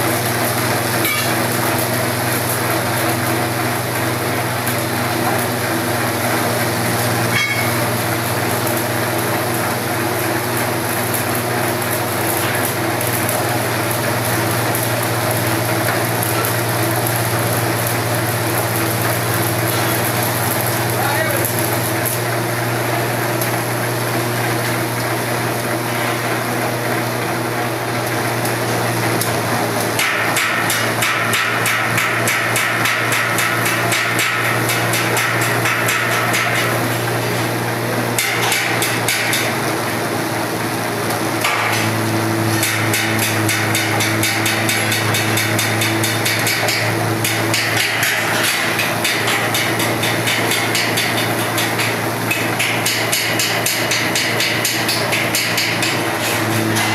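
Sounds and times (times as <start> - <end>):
shredder motor hum: 0.0 - 30.2, 36.7 - 50.3
shredder cutter clattering: 0.1 - 27.7, 28.3 - 56.9.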